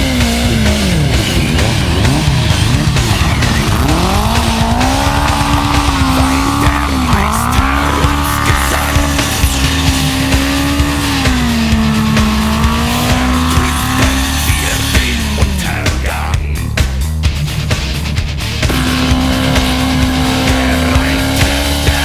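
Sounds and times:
motorcycle engine revving: 0.0s - 22.0s
rock music: 0.0s - 22.0s.

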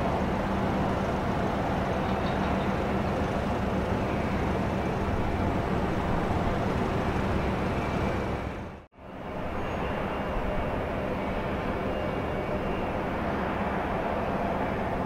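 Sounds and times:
diesel engine humming: 0.0s - 8.9s
terminal machinery noise: 0.0s - 15.0s.

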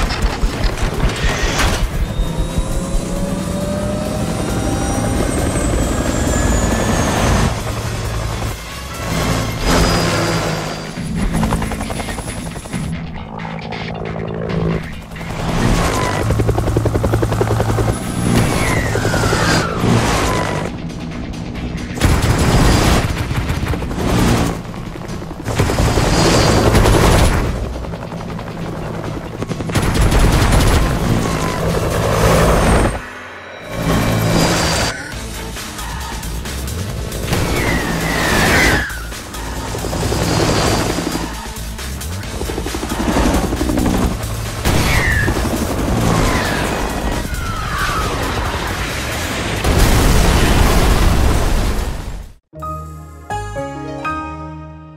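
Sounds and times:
action film music: 0.0s - 50.4s
helicopter rotors chopping: 0.0s - 50.8s
explosions: 48.0s - 52.3s
music soundtrack: 52.5s - 54.9s.

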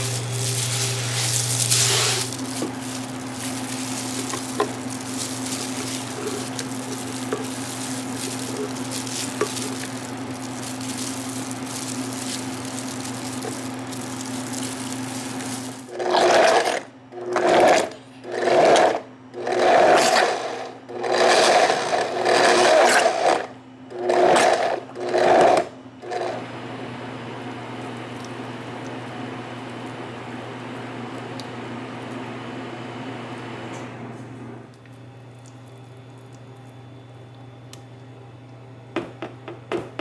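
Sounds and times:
blender motor bursts: 0.0s - 26.4s.

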